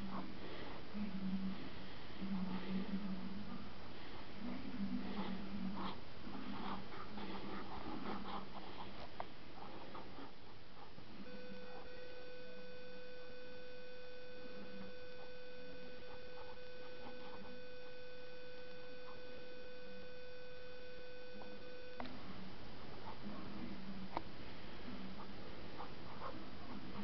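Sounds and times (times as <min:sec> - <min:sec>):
steady tone: 0:00.0 - 0:27.0
pen scratching on paper: 0:05.0 - 0:11.0.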